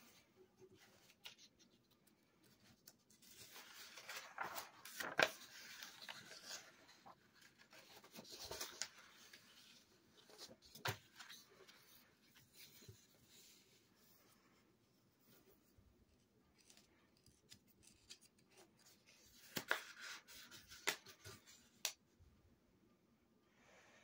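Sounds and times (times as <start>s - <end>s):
paper crinkles: 0.6s - 13.0s
paper rustling on wooden table: 2.6s - 13.5s.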